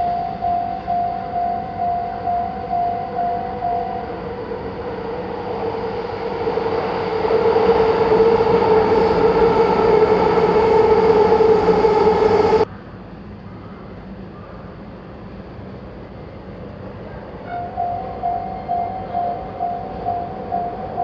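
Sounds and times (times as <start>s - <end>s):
train rumbling past: 0.0s - 21.0s.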